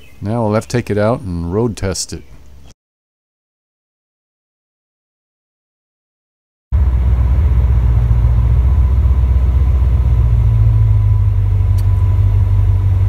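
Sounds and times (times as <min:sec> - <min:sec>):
car engine low drone: 0:06.7 - 0:13.0.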